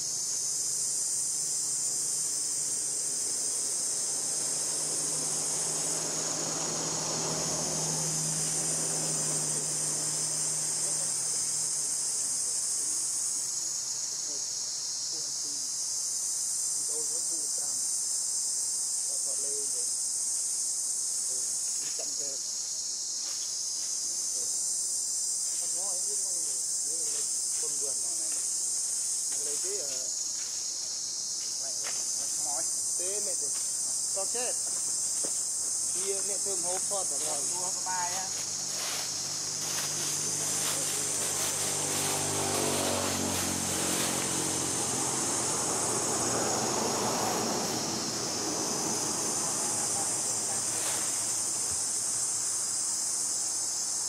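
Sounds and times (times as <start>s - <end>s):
high-pitched insect chorus: 0.0s - 54.0s
distant engine drone: 0.6s - 13.2s, 34.2s - 52.5s.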